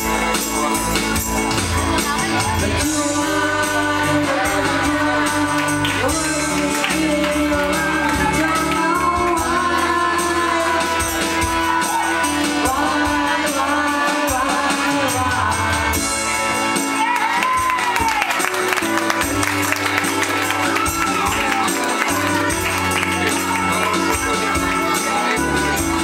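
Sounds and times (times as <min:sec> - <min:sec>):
karaoke backing music: 0:00.0 - 0:26.0
person singing: 0:00.0 - 0:26.0.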